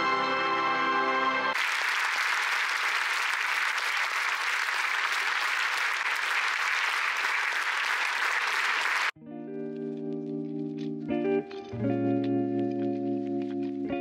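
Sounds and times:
music: 0:00.0 - 0:01.6, 0:09.2 - 0:14.0
audience applauding: 0:01.6 - 0:09.2.

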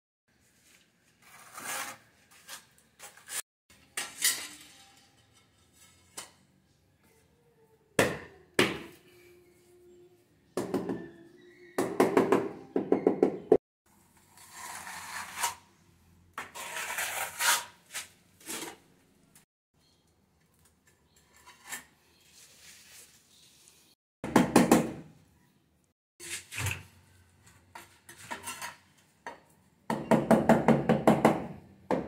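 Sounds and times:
scraping on tiles: 0:00.4 - 0:06.5, 0:14.1 - 0:15.7, 0:16.4 - 0:18.9, 0:20.8 - 0:24.0, 0:26.2 - 0:29.5.

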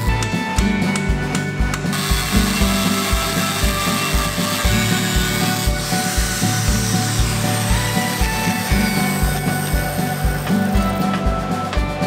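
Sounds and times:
background music with beat: 0:00.0 - 0:12.0
angle grinder grinding steel: 0:01.9 - 0:11.4.

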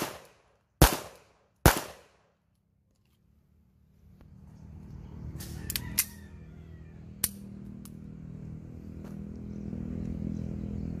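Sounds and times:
pistol metallic clicks: 0:05.7 - 0:06.2, 0:07.1 - 0:08.0.

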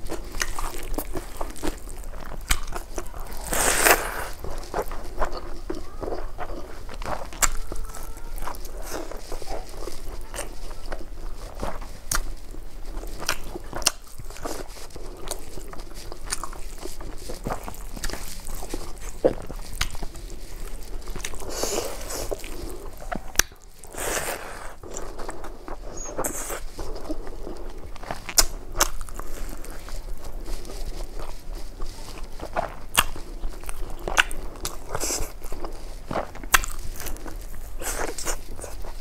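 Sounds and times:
close chewing with mouth clicks: 0:00.0 - 0:39.0.

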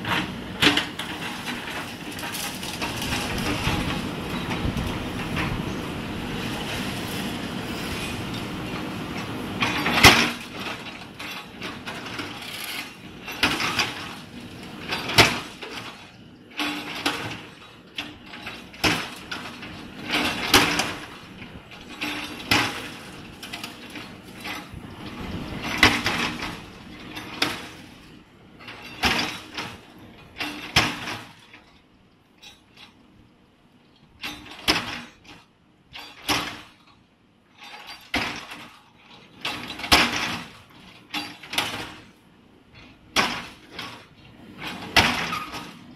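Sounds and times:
concrete cracking and scraping: 0:00.7 - 0:05.5.

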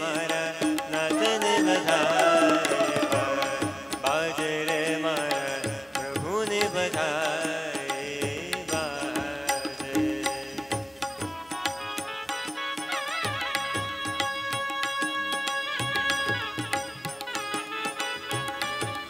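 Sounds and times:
hand drums: 0:00.0 - 0:19.0
bamboo flute: 0:01.2 - 0:03.9.

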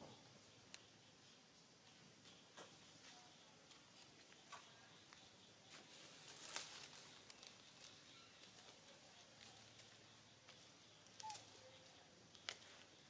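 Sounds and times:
faint chirp: 0:00.0 - 0:13.0
small clicks and rustles: 0:06.1 - 0:13.0.

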